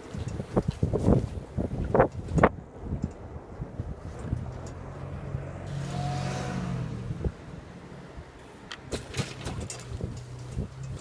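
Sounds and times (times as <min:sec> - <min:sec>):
car driving past: 0:04.2 - 0:09.0.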